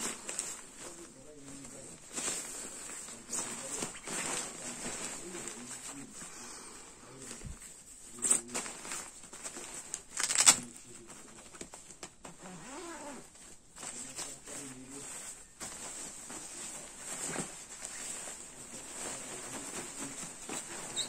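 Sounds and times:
sleeping bag rustling: 0.0 - 10.6, 11.4 - 21.0.

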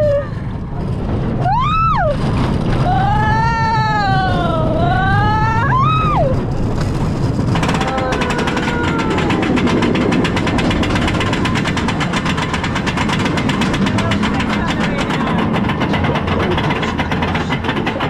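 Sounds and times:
low rumble: 0.0 - 18.0
roller coaster rattle: 0.0 - 18.0
rider whooping: 1.4 - 6.6, 7.6 - 12.0.

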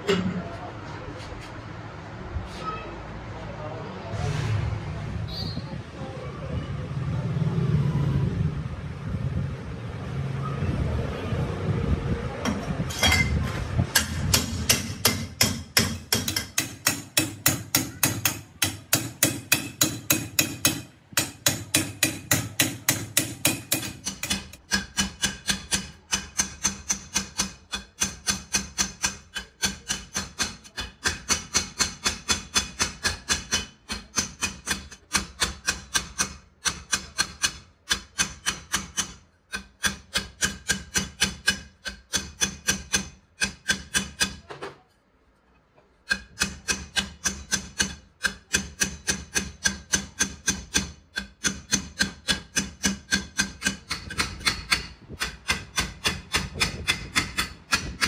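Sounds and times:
hammer striking steel tube: 13.9 - 44.5, 46.0 - 58.0.

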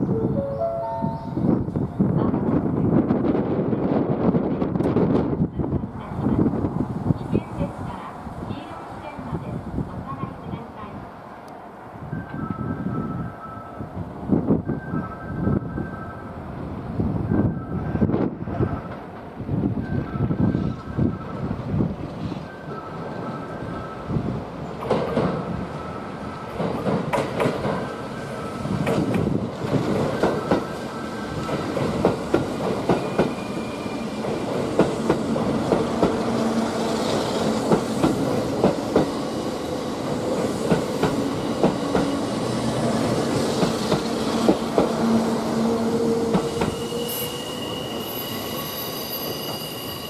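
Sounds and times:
low steady train hum: 0.0 - 50.0
train wheels clacking over rail joints: 24.8 - 25.6, 26.5 - 28.0, 28.8 - 33.5, 34.2 - 36.4, 37.4 - 39.2, 40.1 - 42.2, 43.3 - 45.2
high steady ringing tone: 46.7 - 50.0.

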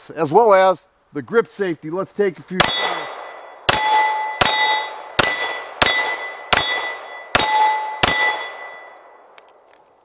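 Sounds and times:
pistol shots: 2.6 - 9.1
steel plate target ringing: 2.6 - 9.2.

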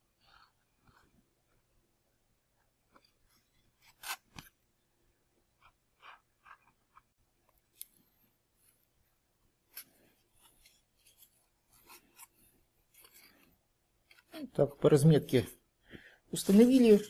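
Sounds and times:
soft clicks and rubs of foam parts: 5.6 - 14.4.

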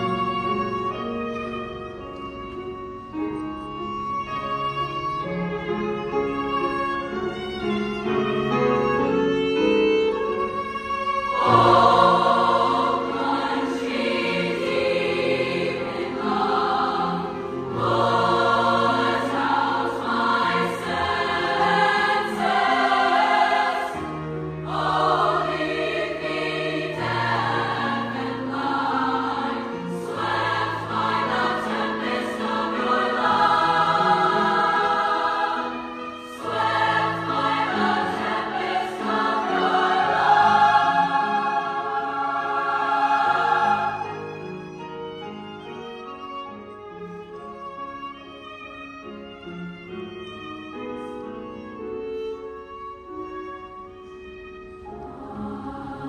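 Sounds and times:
piano: 0.0 - 56.0
violin: 0.0 - 56.0
choir singing: 9.3 - 45.2, 54.8 - 56.0.

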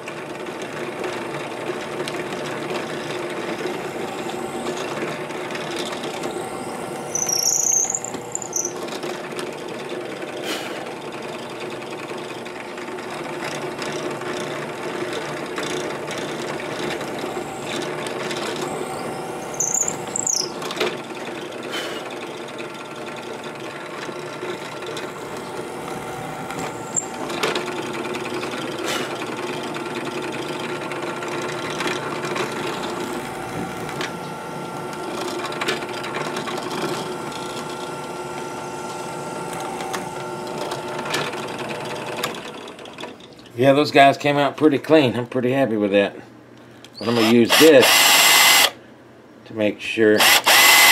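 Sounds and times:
electric drill boring wood: 0.9 - 42.8, 47.0 - 48.8, 50.2 - 50.9
high-pitched squeals: 6.4 - 8.8, 18.6 - 20.6.

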